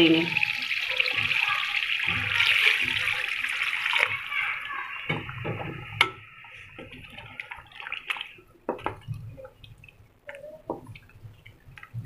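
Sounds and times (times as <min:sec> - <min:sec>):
wet squelching and slopping: 0:06.6 - 0:12.0.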